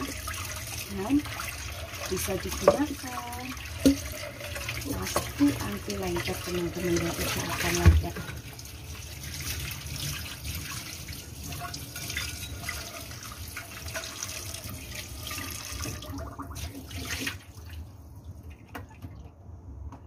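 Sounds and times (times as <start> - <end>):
tap water splashing on pan: 2.0 - 8.6.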